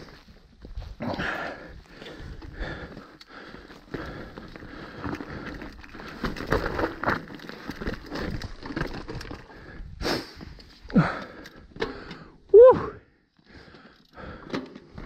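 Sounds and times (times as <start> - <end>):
tyres crunching over stones: 0.0 - 12.0
bike knocks and rattles: 3.8 - 9.6.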